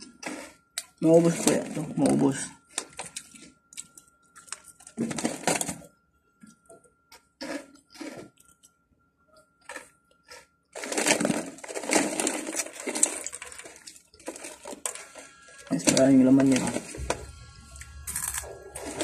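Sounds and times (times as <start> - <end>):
crunching prawn crackers: 2.6 - 5.9, 7.1 - 8.8, 9.4 - 19.0
foil snack bag crinkling: 7.4 - 8.6, 9.7 - 19.0.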